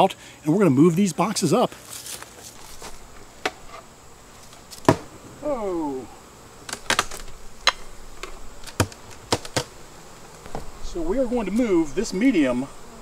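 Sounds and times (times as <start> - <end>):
wooden boxes clicking and knocking: 6.7 - 9.7.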